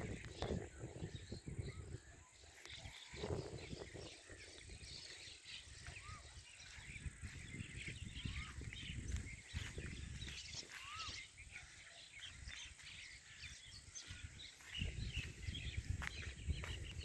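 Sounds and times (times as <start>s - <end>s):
small birds chirping: 0.0s - 17.0s
low rumble on microphone: 13.6s - 17.0s.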